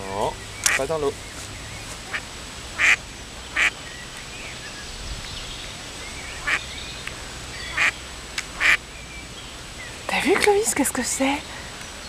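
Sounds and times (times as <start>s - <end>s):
ducks quacking: 2.8s - 3.8s, 6.4s - 6.6s, 7.7s - 8.0s, 8.6s - 8.8s.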